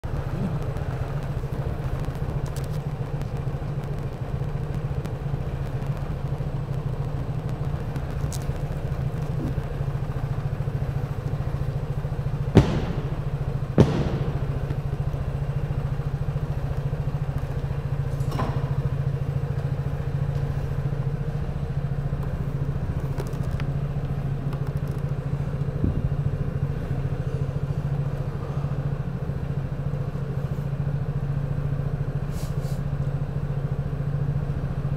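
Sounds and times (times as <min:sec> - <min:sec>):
scooter engine idling: 0:00.0 - 0:34.9
sharp knocks: 0:12.5 - 0:14.9.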